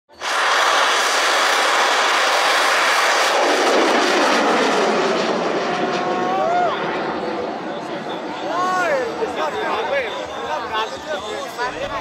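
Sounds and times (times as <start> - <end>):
rocket motor roaring: 0.1 - 7.6.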